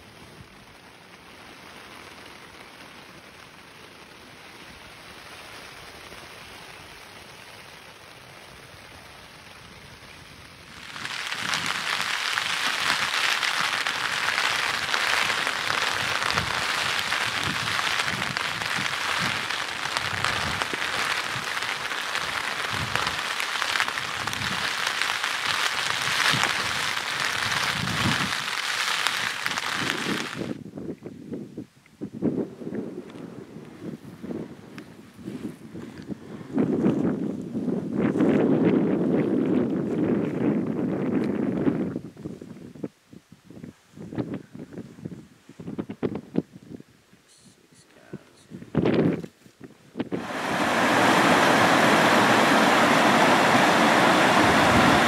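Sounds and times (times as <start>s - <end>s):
loud rain: 0.0s - 30.6s, 50.1s - 55.0s
faint steady hiss: 0.0s - 38.2s, 41.5s - 55.0s
wind rumbling on microphone: 0.0s - 55.0s.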